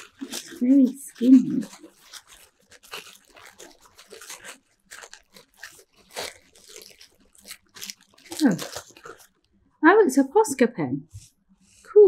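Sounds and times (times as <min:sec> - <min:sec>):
gift wrapping crinkling and tearing: 0:00.0 - 0:09.6.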